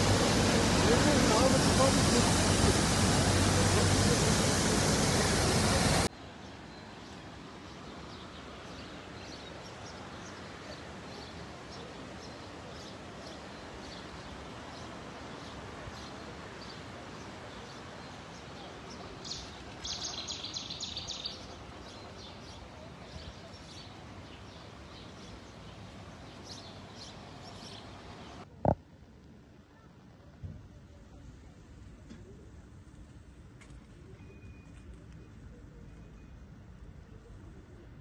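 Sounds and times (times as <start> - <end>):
floodwater rushing: 0.0 - 20.5
small birds chirping: 7.0 - 28.4.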